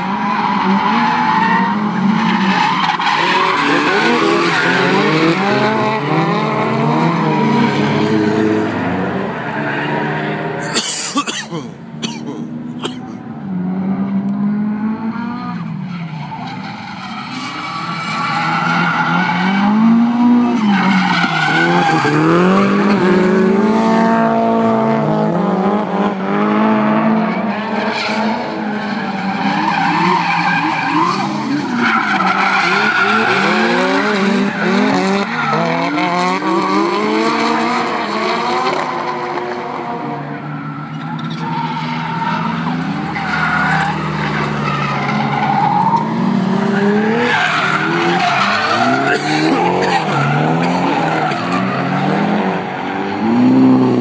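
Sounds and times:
tyres squealing on tarmac: 0.0 - 5.6, 15.6 - 23.0, 27.3 - 38.0, 40.4 - 53.0
car engines revving: 0.0 - 54.0.

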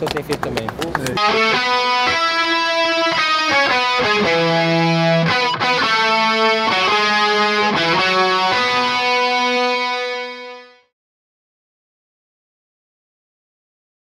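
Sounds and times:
slow guitar melody: 1.2 - 10.9.

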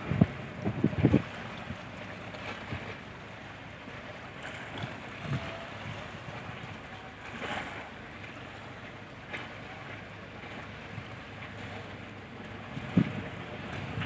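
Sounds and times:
wind noise on microphone: 0.0 - 1.8, 5.2 - 6.1, 12.7 - 14.0
ship engines: 0.0 - 14.0.

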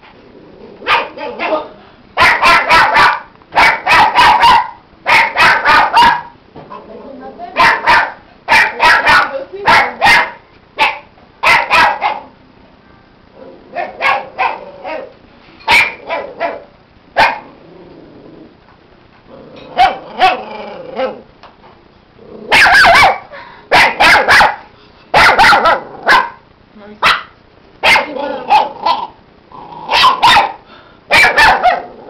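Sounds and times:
puppy yapping: 0.8 - 1.6, 2.2 - 6.4, 7.6 - 12.3, 13.7 - 15.1, 15.7 - 17.5, 19.8 - 21.2, 22.5 - 26.4, 27.0 - 29.2, 29.9 - 31.9.

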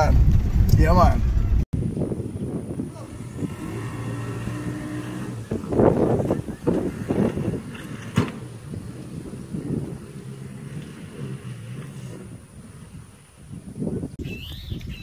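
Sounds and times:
off-road vehicle engine running: 2.9 - 13.3.

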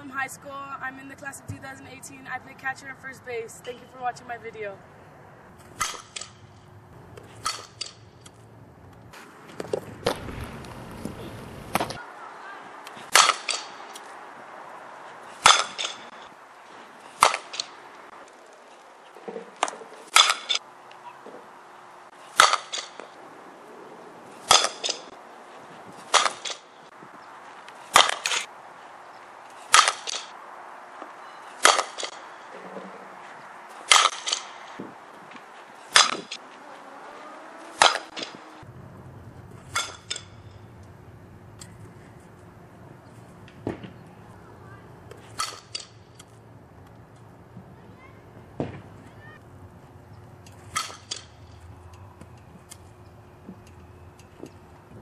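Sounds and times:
bat cracking against ball: 5.6 - 12.1, 12.7 - 23.3, 24.4 - 38.7, 39.6 - 40.8, 43.3 - 44.1, 45.1 - 47.0, 48.4 - 49.4, 50.4 - 55.0.

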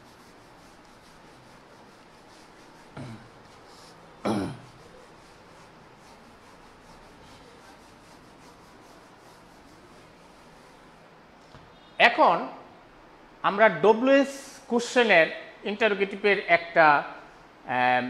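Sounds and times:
faint room hiss: 0.0 - 18.0
man clearing throat: 3.0 - 3.3, 4.2 - 4.8.

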